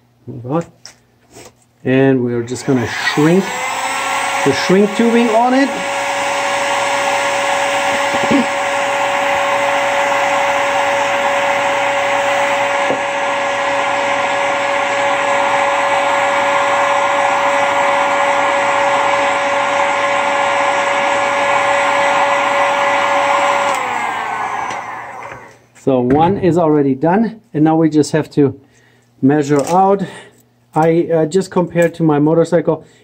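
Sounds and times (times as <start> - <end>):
heat gun fan whine: 2.2 - 25.8.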